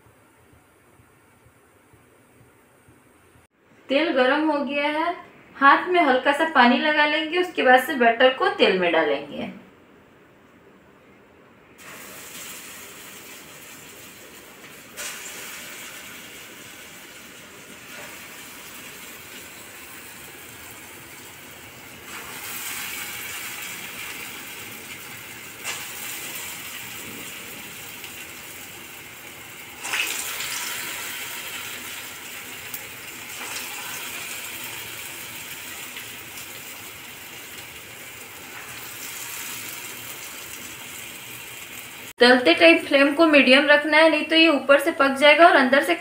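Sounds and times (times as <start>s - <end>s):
batter sizzling in hot oil: 11.8s - 42.2s.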